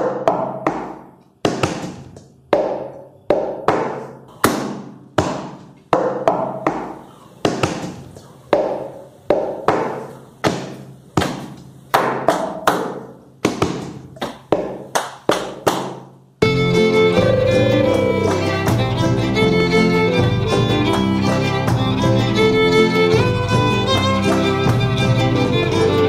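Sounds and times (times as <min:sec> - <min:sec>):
plastic cups tapped on table: 0:05.2 - 0:16.1
bowed strings: 0:16.4 - 0:26.0.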